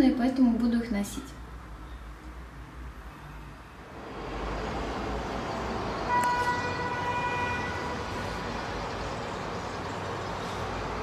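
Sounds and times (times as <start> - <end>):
street traffic noise: 0.0 - 11.0
vehicle horn: 6.1 - 8.2.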